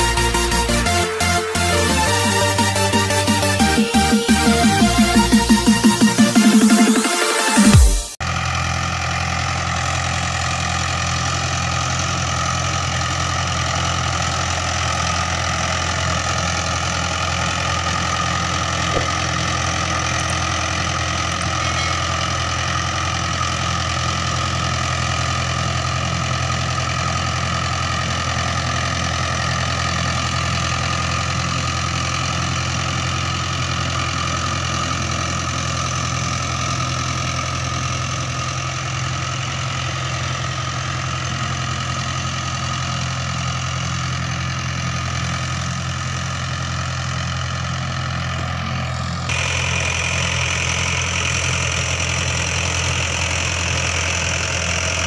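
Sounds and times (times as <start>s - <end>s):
tractor diesel engine running: 0.0s - 55.0s
rotavator tilling soil: 9.4s - 25.9s, 47.8s - 55.0s.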